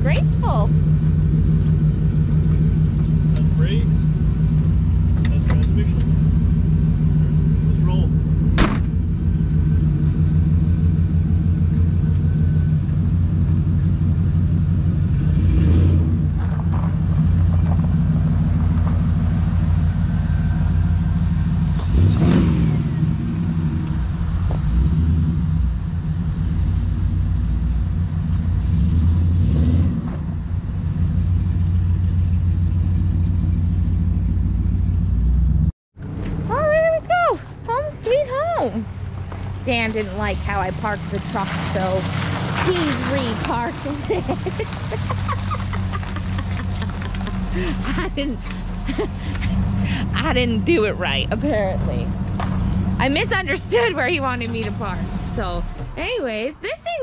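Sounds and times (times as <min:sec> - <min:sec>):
vehicle engine droning: 0:00.0 - 0:57.0.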